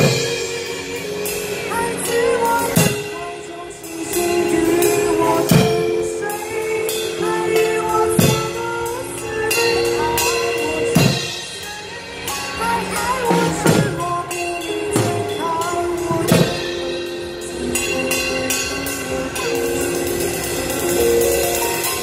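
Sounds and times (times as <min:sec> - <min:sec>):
recorded song with singing: 0:00.0 - 0:17.4
acoustic drum kit playing: 0:00.0 - 0:22.0.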